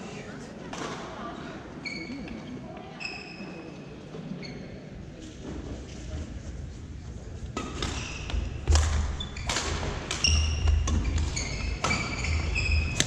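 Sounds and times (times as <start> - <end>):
racket hitting shuttlecock: 7.5 - 13.0
sneakers squeaking on wooden floor: 7.6 - 13.0.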